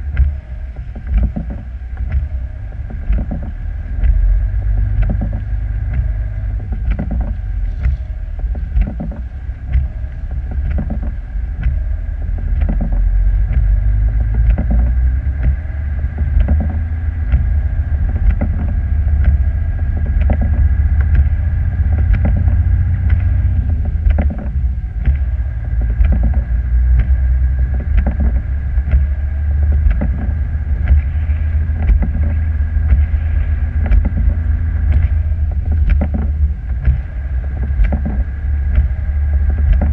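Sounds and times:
vehicle engine and road rumble: 0.0 - 39.9
short irregular knocks: 6.7 - 11.8.

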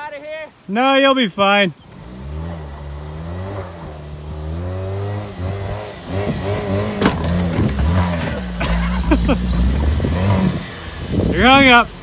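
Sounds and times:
car engine revving: 1.8 - 12.0
car striking dirt knock: 6.6 - 9.9.

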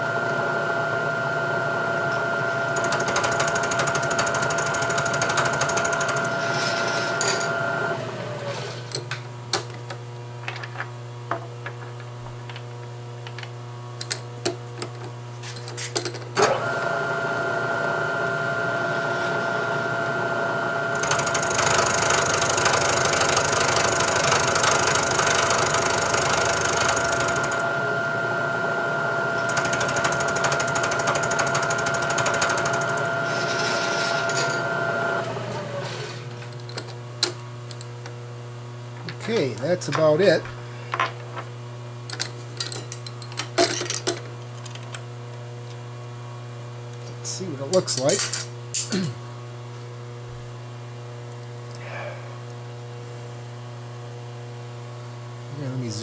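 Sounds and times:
milling machine spindle whine: 0.0 - 8.9, 16.4 - 36.9.

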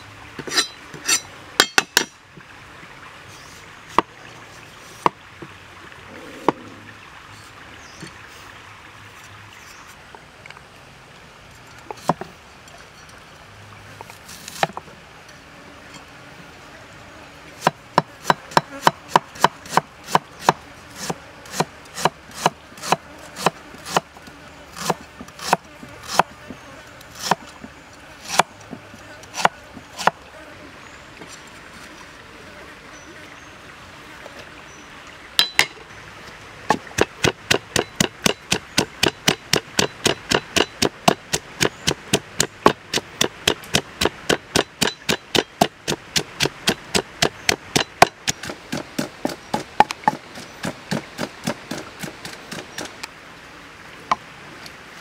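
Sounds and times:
background hiss: 0.0 - 55.0
cleaver chopping on wooden block: 0.4 - 2.1, 17.6 - 24.1, 24.8 - 26.3, 27.2 - 27.4, 28.3 - 28.5, 29.3 - 30.2, 36.7 - 52.9.

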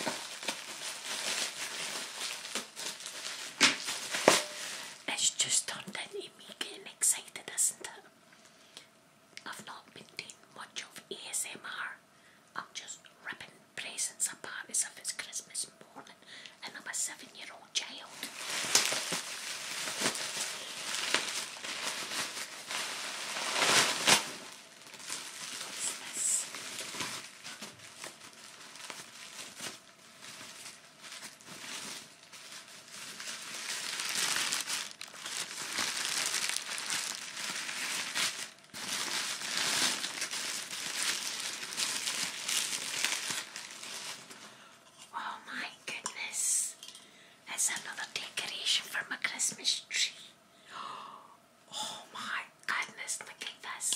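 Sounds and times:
tissue paper crinkling: 0.0 - 5.4, 17.8 - 44.6.

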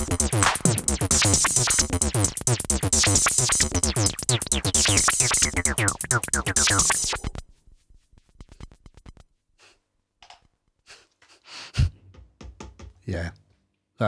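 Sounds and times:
fast electronic synthesizer beat: 0.0 - 7.4.

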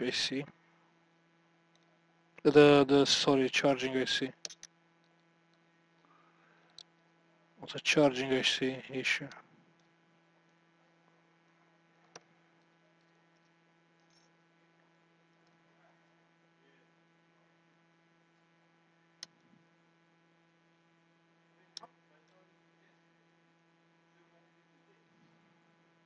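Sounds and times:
low electrical hum: 0.0 - 26.0.

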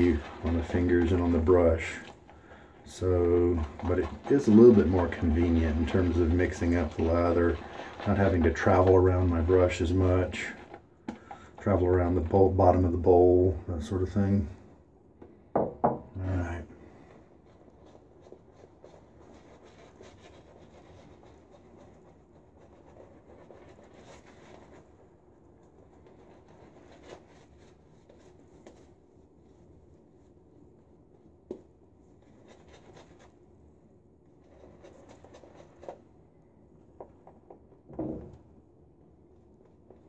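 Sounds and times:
shaving brush scratching: 0.0 - 10.9, 17.6 - 25.0, 32.2 - 33.4
loud knock: 15.5 - 16.1.

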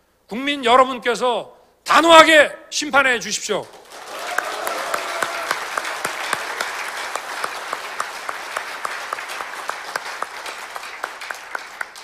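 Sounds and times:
sharp evenly spaced claps: 3.6 - 12.0
audience applauding: 3.7 - 12.0.

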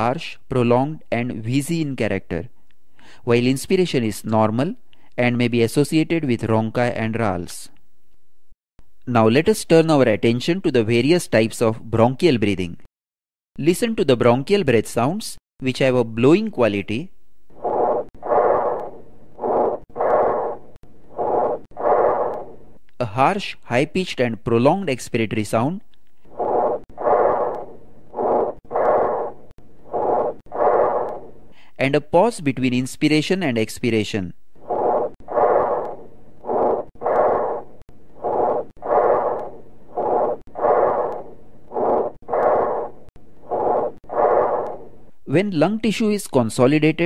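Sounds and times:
breathing through stethoscope: 2.9 - 3.2, 30.1 - 31.8
bronchial breathing: 2.9 - 3.3, 26.3 - 31.8.

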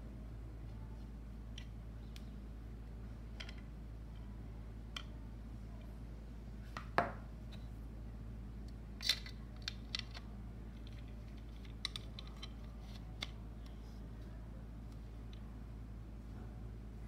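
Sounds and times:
steady low hum: 0.0 - 17.0
plastic housing clicks and taps: 10.8 - 13.8.

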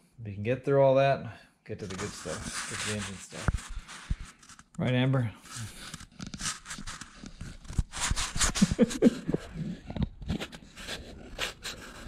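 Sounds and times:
dog sniffing and breathing: 5.4 - 12.0.

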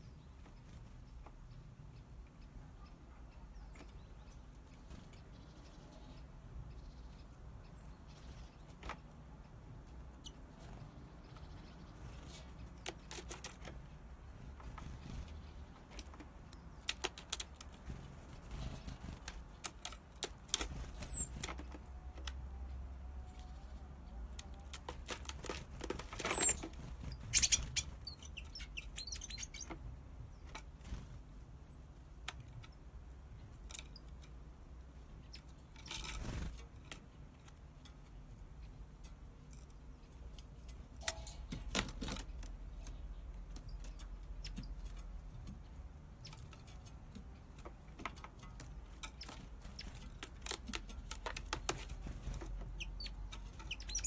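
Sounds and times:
bird feet tapping on plastic: 46.4 - 54.0.

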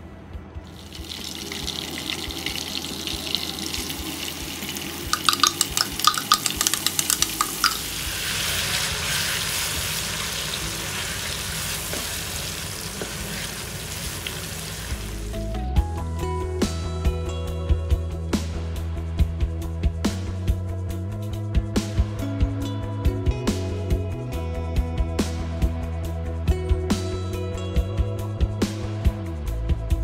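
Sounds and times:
paste sizzling in hot oil: 0.7 - 15.4.

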